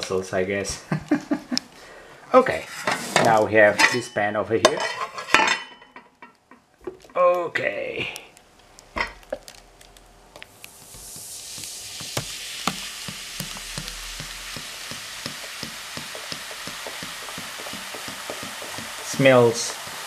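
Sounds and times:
soda fizzing in a pot: 0:08.4 - 0:20.0
knock: 0:12.0 - 0:19.1.

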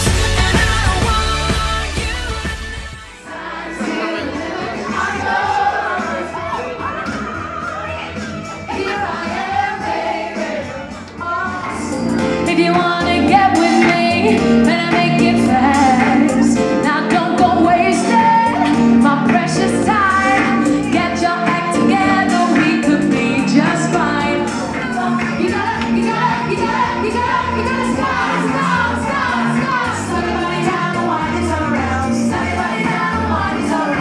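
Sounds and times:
pop backing track with beat: 0:00.0 - 0:34.0
woman singing into microphone: 0:11.2 - 0:34.0.

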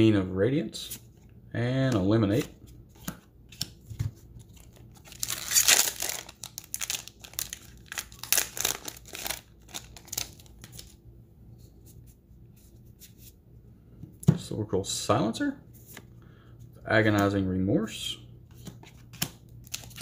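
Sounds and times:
foil wrapper crinkling: 0:04.6 - 0:11.0
foil pack tearing: 0:05.1 - 0:10.9.

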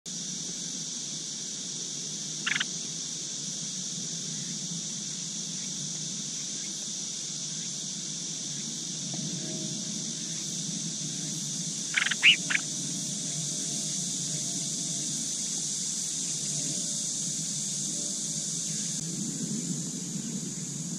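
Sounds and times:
steady high hiss: 0:00.1 - 0:20.9
bird chirps: 0:11.9 - 0:12.6.

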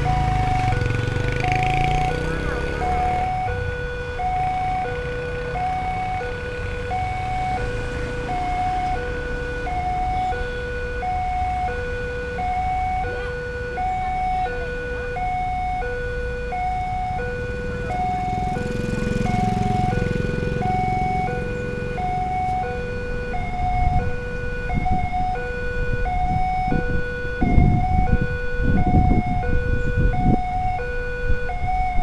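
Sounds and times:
motorcycle passing: 0:00.0 - 0:10.4, 0:16.4 - 0:25.2
road traffic: 0:00.0 - 0:32.0
two-tone crossing alarm: 0:00.0 - 0:32.0.

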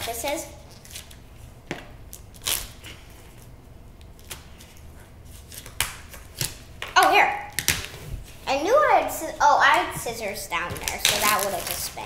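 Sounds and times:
plastic wrap scratching and crinkling: 0:02.2 - 0:03.4, 0:10.7 - 0:12.0.

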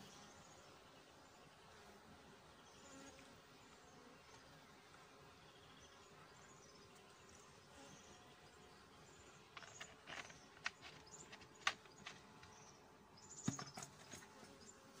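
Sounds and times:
honeybees humming: 0:02.5 - 0:15.0
knocks on wooden hive box: 0:13.4 - 0:14.0.

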